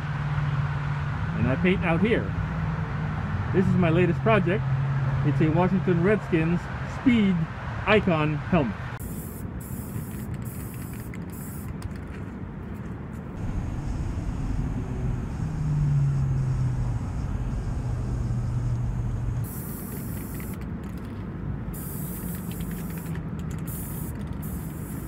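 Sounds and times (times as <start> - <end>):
low rumble of traffic: 0.0 - 25.0
spray-paint can hissing: 9.0 - 12.1, 19.4 - 21.1, 21.7 - 25.0.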